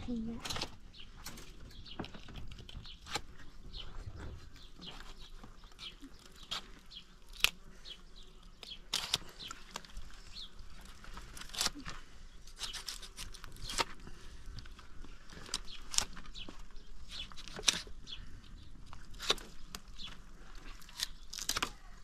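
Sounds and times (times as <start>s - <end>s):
birds chirping: 0.0s - 22.0s
knife cutting hide: 8.6s - 9.9s, 11.2s - 14.0s, 19.0s - 19.8s.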